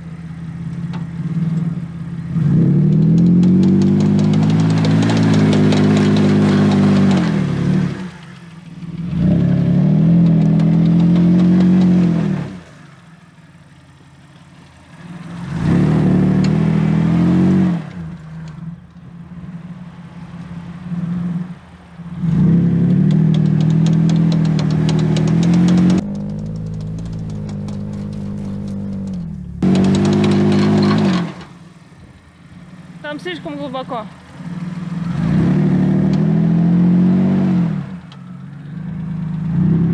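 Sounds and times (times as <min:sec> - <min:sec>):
suv engine revving hard: 0:15.3 - 0:18.0, 0:22.2 - 0:31.4, 0:34.4 - 0:38.0.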